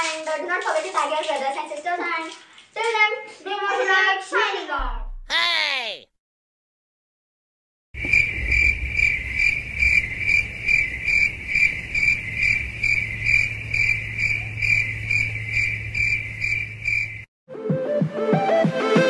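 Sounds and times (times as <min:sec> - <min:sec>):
cricket chirping: 0:08.0 - 0:17.3.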